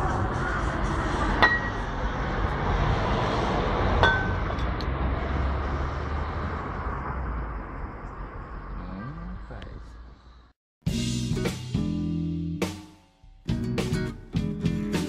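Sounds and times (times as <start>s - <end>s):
glass bottles clinking: 4.0s - 4.6s.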